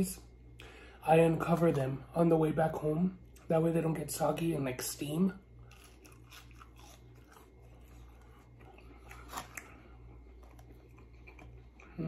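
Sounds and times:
low steady hum: 0.0 - 12.0
chewing crispy food: 5.5 - 12.0.

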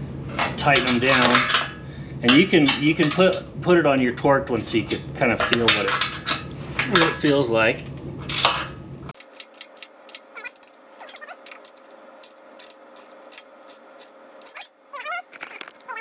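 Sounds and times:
squeaky whines: 10.3 - 11.7, 14.4 - 16.0.

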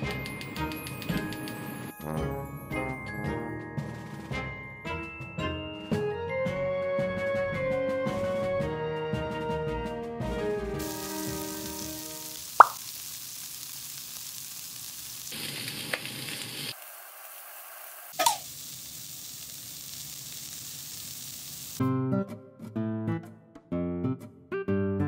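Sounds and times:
food sizzling in oil: 10.8 - 21.8.

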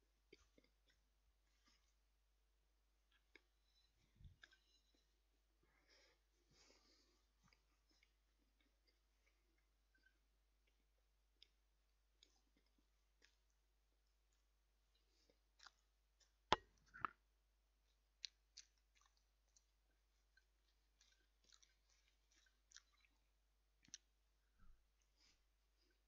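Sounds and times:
person chewing food: 0.2 - 2.1, 2.8 - 26.0
mouth clicks and smacks: 18.2 - 24.7.

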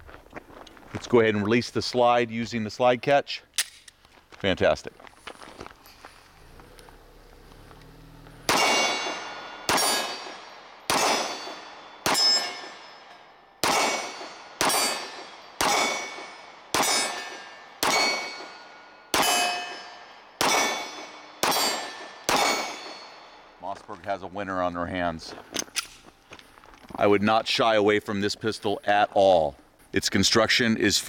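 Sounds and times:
steel target clanging: 8.4 - 23.6
pistol shots: 8.5 - 12.9, 13.6 - 23.4.

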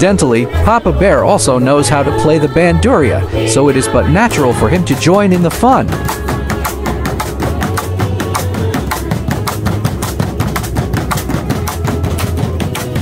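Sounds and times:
ukuleles strumming: 2.9 - 13.0.

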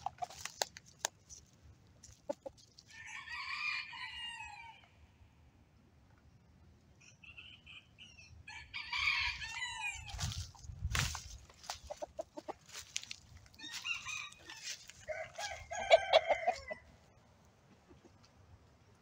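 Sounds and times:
rooster crowing and clucking: 2.2 - 5.2, 7.2 - 17.2.

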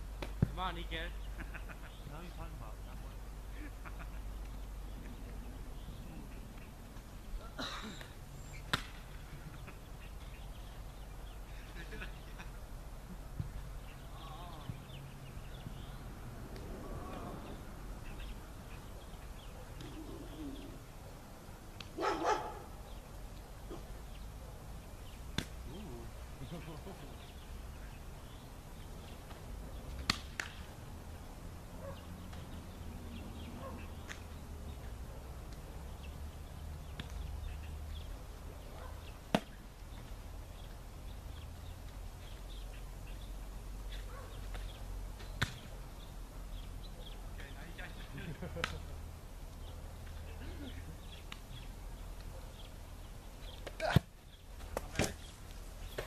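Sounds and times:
birds chirping: 0.0 - 56.0
football slapping into hands: 8.7 - 9.0, 25.3 - 25.6, 30.0 - 30.6, 45.4 - 45.7, 53.6 - 55.3
bird chirps: 17.0 - 20.8
dog barking: 22.0 - 22.8, 23.7 - 24.6, 31.8 - 32.1, 33.6 - 33.9, 38.7 - 39.1, 44.1 - 44.4.

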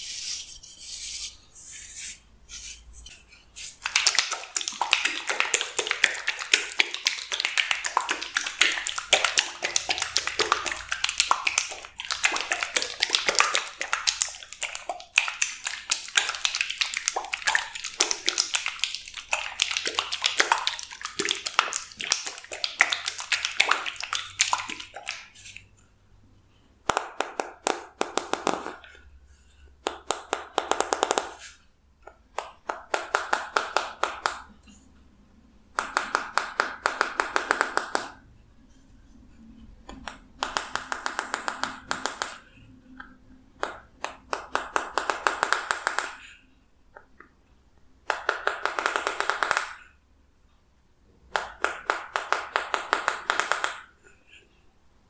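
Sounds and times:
fingers tapping plastic bottle: 35.8 - 38.2, 39.9 - 42.4.

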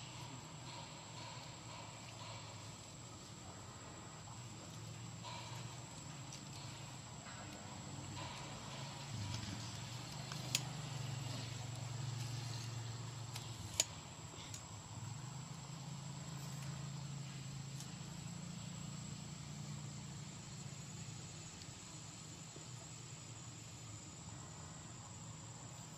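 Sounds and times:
steady low hum: 0.0 - 25.9
sharp clicks: 10.0 - 10.8.

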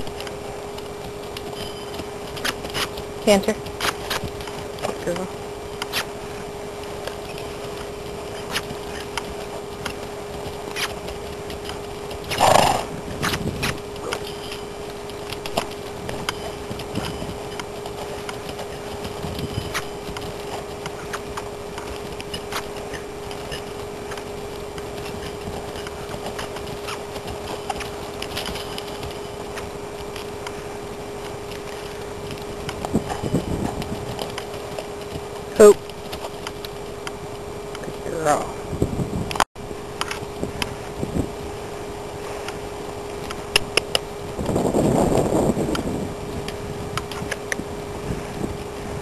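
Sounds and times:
hooves cantering on dirt: 0.0 - 38.0
steady hum: 0.0 - 49.0
horse outburst: 12.3 - 12.9.

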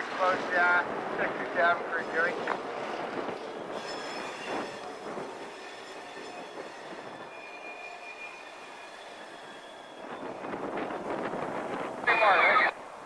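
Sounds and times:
train wheels squealing on rails: 2.7 - 11.5.

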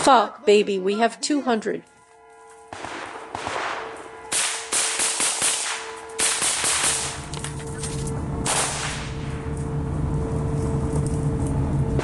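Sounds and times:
rifle fire bursts: 2.7 - 7.3, 8.4 - 9.3.

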